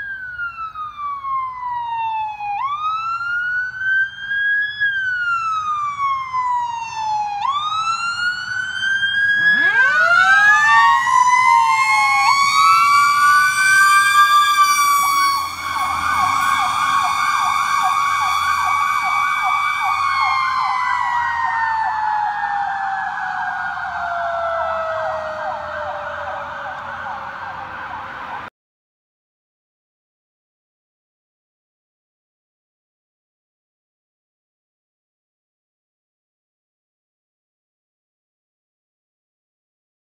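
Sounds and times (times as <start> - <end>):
fast pulsing siren yelp: 0.0 - 28.5
fire siren wailing: 0.0 - 28.5
second siren winding up: 8.8 - 28.5.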